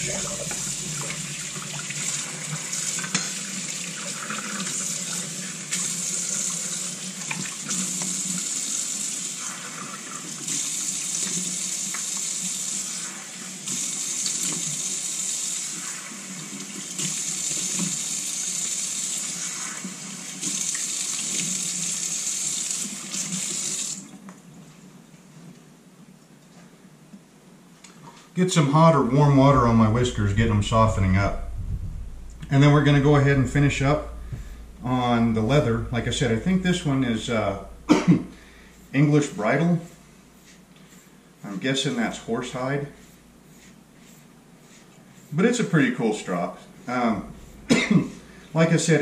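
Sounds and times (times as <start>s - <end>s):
water running from tap into sink: 0.0s - 24.0s.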